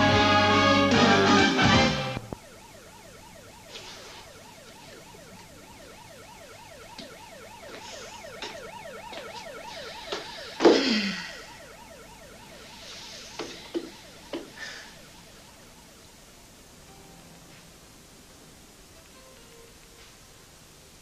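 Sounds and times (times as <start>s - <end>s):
theme music: 0.0s - 2.3s
faint siren yelping: 1.9s - 16.8s.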